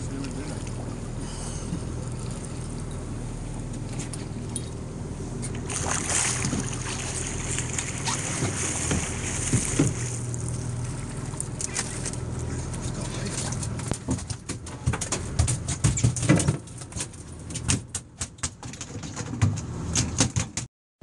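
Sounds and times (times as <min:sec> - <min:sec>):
boat engine humming: 0:00.0 - 0:15.9.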